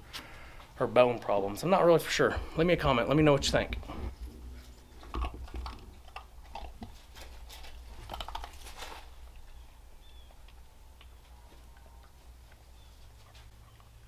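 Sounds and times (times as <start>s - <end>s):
dog chewing and crunching food: 3.6s - 14.0s.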